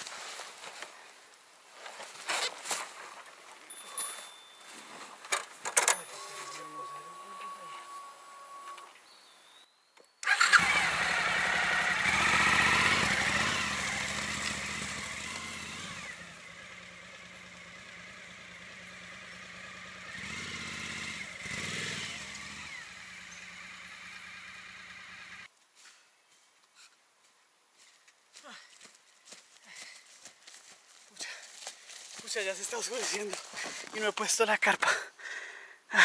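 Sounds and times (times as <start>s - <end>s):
motorcycle engine revving: 10.2s - 25.5s.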